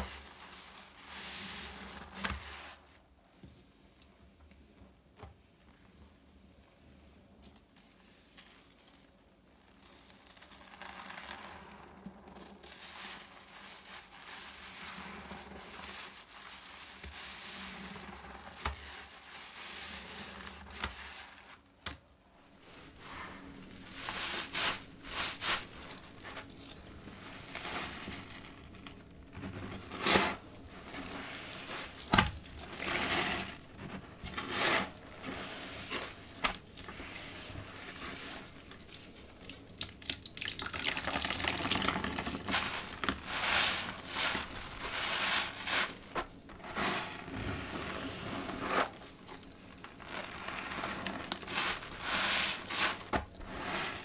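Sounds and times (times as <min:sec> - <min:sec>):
foam crackling: 0:22.6 - 0:54.0
wet sponge squelches: 0:22.6 - 0:54.0.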